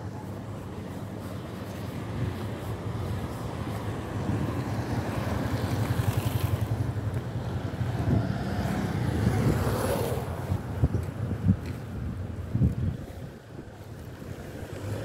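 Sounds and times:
vehicle engine and road rumble: 0:00.0 - 0:15.0
wind on microphone: 0:00.0 - 0:15.0.

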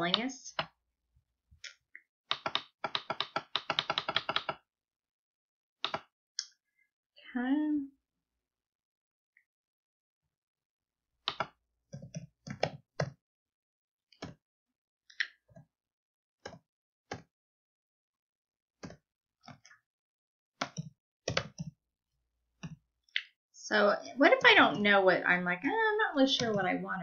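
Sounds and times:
keyboard keystrokes: 0:02.3 - 0:04.6.

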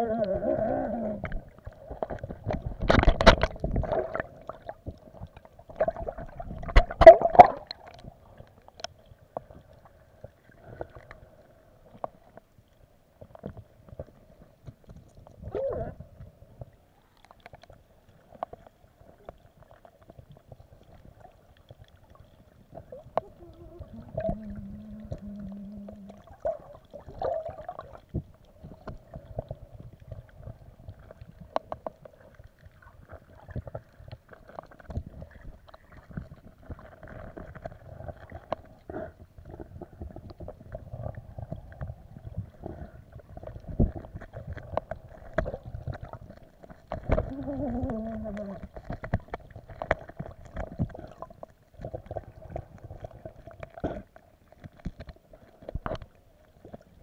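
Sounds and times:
underwater rumbling water: 0:00.0 - 0:57.0
underwater clicks and knocks: 0:01.2 - 0:08.1, 0:22.7 - 0:32.2, 0:33.3 - 0:38.8, 0:43.4 - 0:56.9.

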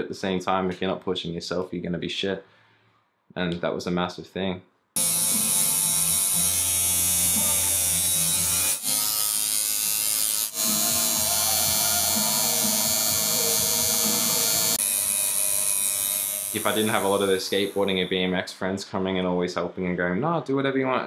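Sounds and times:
tattoo machine buzzing: 0:05.0 - 0:18.1.

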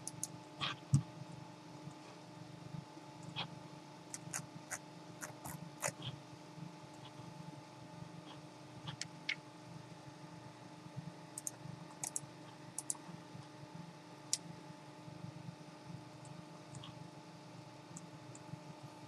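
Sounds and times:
faint steady hum: 0:00.0 - 0:19.0
computer mouse clicks: 0:11.4 - 0:12.2, 0:12.8 - 0:13.0.

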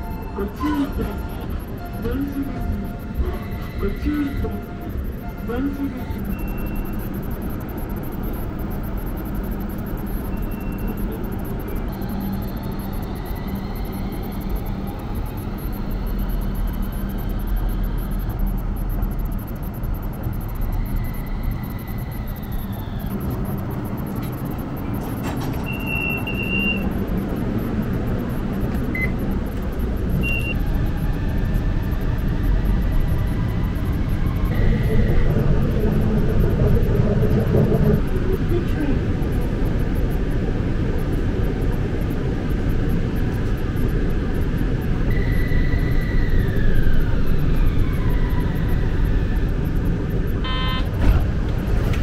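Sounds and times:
short high beeps: 0:00.0 - 0:07.3, 0:25.6 - 0:26.9, 0:28.9 - 0:29.2, 0:30.2 - 0:30.6, 0:50.4 - 0:50.9
faint whine: 0:00.0 - 0:52.0
vehicle running rumble: 0:00.0 - 0:52.0.

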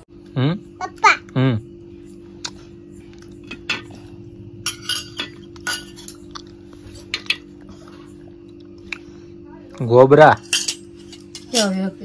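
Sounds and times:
faint low hum: 0:00.0 - 0:12.0
spoons clinking on metal plate: 0:04.6 - 0:06.3, 0:10.4 - 0:11.8.

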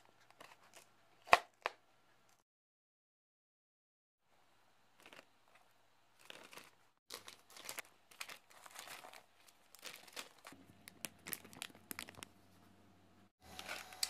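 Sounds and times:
plastic bag crinkling: 0:06.2 - 0:12.4.

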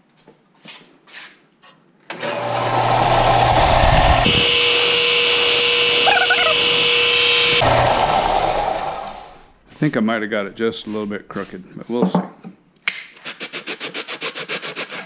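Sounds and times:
belt sander running: 0:02.2 - 0:09.6
high grinding hiss: 0:02.5 - 0:09.5.

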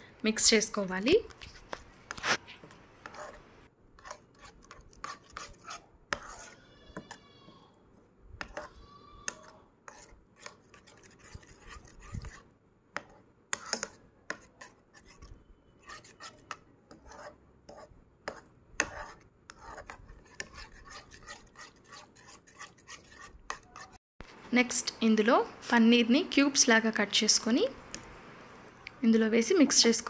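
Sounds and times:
spoon scraping a bowl: 0:01.3 - 0:03.4, 0:04.0 - 0:07.1, 0:08.4 - 0:12.4, 0:13.0 - 0:24.0.

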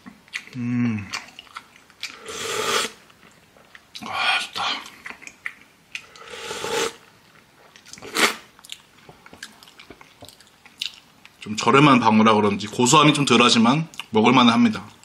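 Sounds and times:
loud hissing slurps: 0:02.2 - 0:03.0, 0:06.2 - 0:07.0.

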